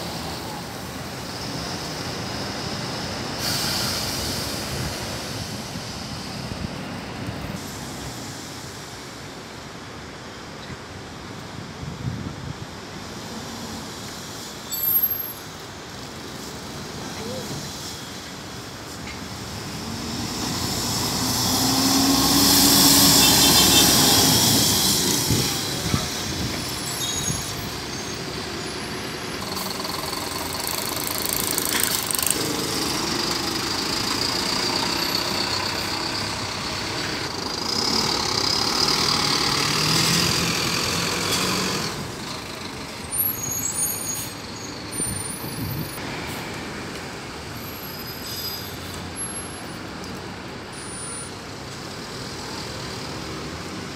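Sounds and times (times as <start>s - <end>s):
bus engines driving past: 0.0s - 53.9s
air brakes hissing: 3.3s - 6.5s, 7.6s - 9.0s, 16.9s - 40.1s.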